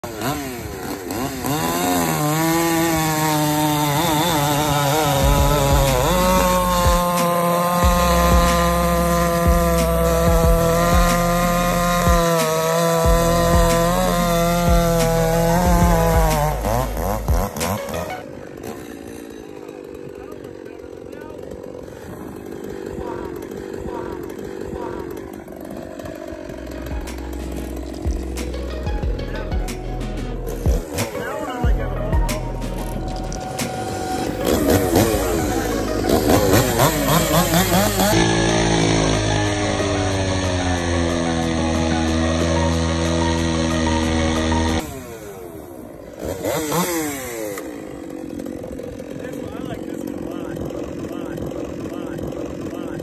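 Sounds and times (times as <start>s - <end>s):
chainsaw cutting log: 0.0s - 53.0s
music with deep bass: 4.9s - 18.2s, 26.6s - 44.8s.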